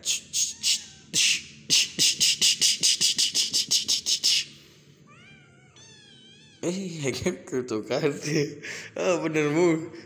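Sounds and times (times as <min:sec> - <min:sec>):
person making hissing mouth sounds: 0:00.0 - 0:04.8.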